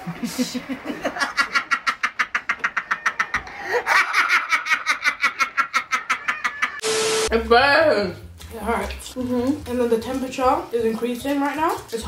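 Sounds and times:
rapid high-pitched laughter: 0:00.7 - 0:06.8.

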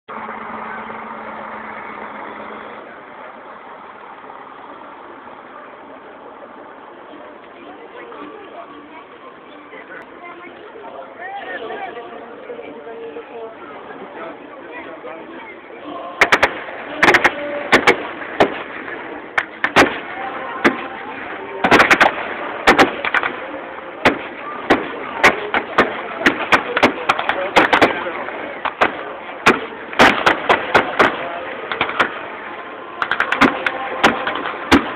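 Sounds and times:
engine humming: 0:00.1 - 0:34.9
noisy rush: 0:00.1 - 0:34.9
steady background noise: 0:00.1 - 0:34.9
gunshots: 0:16.2 - 0:32.2, 0:33.0 - 0:34.9.

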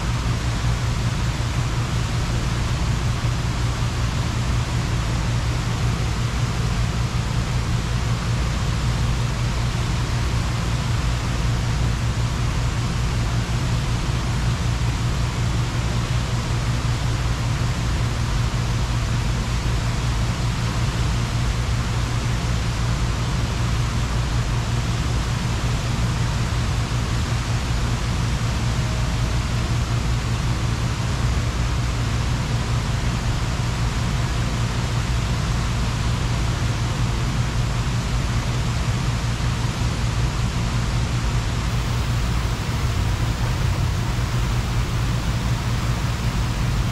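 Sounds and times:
fountain water jets splashing: 0:41.7 - 0:46.9.

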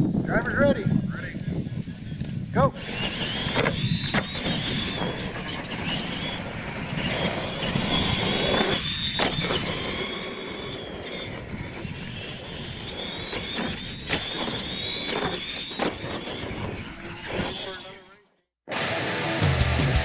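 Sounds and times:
electric toy trucks whining: 0:02.0 - 0:18.4.

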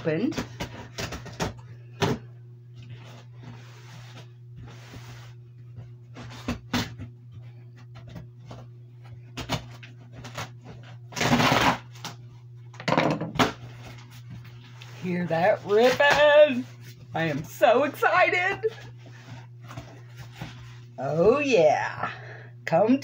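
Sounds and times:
cardboard ripping: 0:09.4 - 0:12.1.

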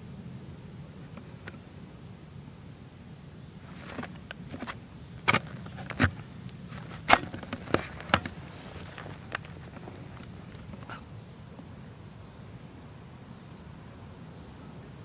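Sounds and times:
faint steady hiss: 0:00.0 - 0:15.0
sharp clicks and knocks: 0:03.8 - 0:10.9.

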